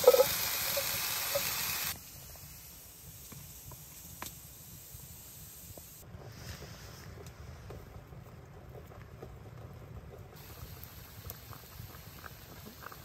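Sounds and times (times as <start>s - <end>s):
beans sizzling in a hot pot: 0.0s - 6.0s, 10.4s - 13.0s.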